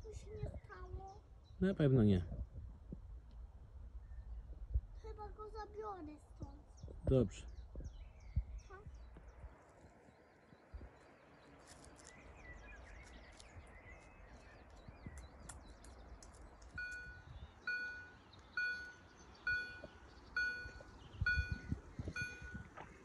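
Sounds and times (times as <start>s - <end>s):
birds chirping: 3.9s - 23.0s
level crossing warning bell: 16.8s - 22.7s.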